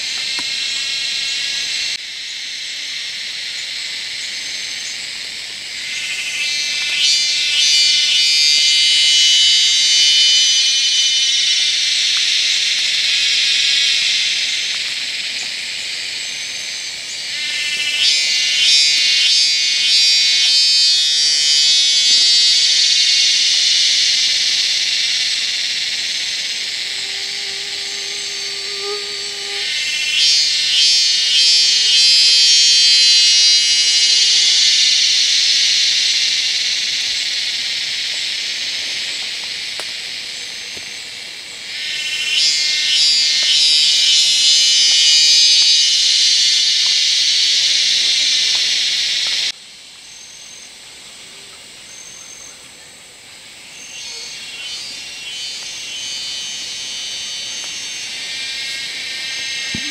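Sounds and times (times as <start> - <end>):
faint insect buzzing: 0.0 - 41.1, 53.7 - 59.9
cicadas buzzing chorus: 0.0 - 59.9
low steady hooting tone: 1.0 - 14.7, 16.0 - 39.0, 54.0 - 59.9.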